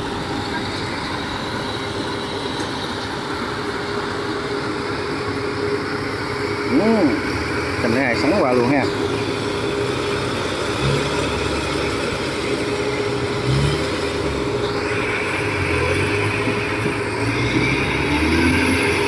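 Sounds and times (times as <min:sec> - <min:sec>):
constant machine whine: 0:00.0 - 0:19.0
farm machinery engines running: 0:00.0 - 0:19.0.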